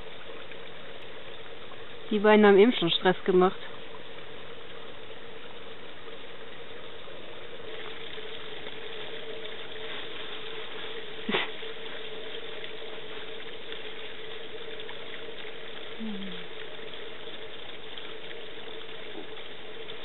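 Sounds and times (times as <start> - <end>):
faint hum: 0.0 - 20.0
water splashing onto stones: 7.5 - 20.0.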